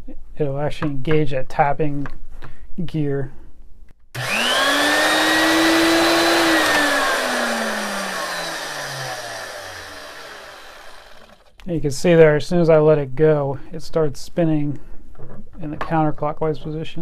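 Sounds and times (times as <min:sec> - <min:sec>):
electric motor whine: 0:04.2 - 0:11.5.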